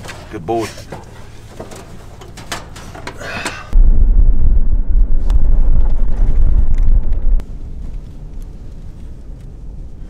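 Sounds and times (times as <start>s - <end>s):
truck driving rumble: 0.0s - 10.0s
road and wind noise: 0.9s - 10.0s
metal door clicks and clatters: 1.6s - 3.2s.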